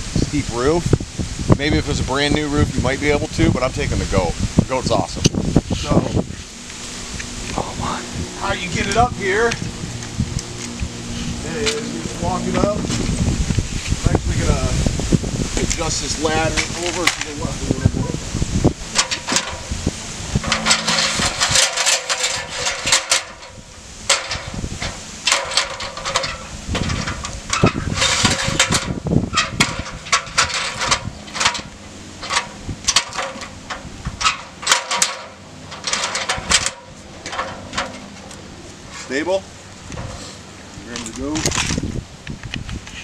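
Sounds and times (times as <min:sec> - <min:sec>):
metal ladder clanking: 0:18.9 - 0:39.4.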